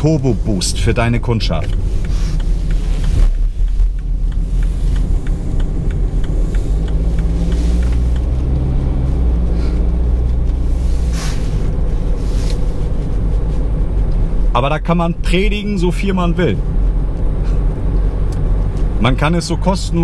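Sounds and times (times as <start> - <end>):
light regular ticking: 0.0 - 10.2
engine and road rumble: 0.0 - 20.0
short rustle: 6.7 - 14.5.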